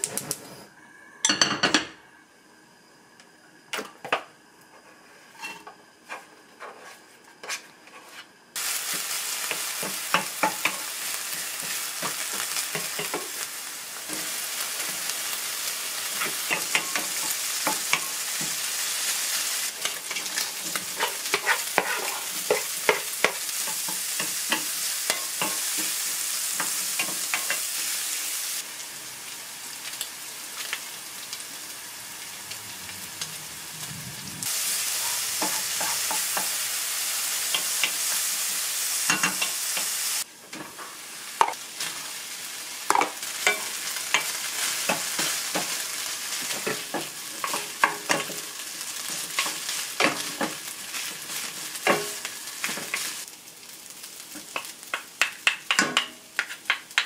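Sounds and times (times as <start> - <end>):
utensil scraping a pan: 5.3 - 8.3, 20.1 - 23.0
food sizzling in a frying pan: 8.6 - 57.0.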